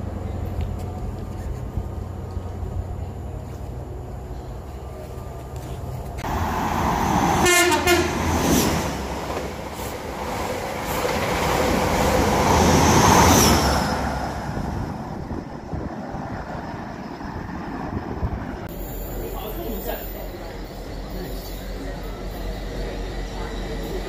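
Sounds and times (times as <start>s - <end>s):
train passing at speed: 0.0s - 24.0s
train horn blast: 7.4s - 8.3s.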